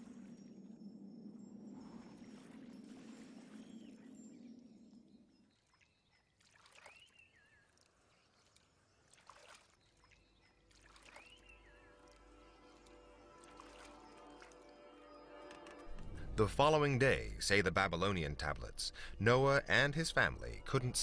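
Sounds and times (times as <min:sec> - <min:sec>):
soft music: 0:08.5 - 0:21.0
water rushing: 0:10.7 - 0:14.7.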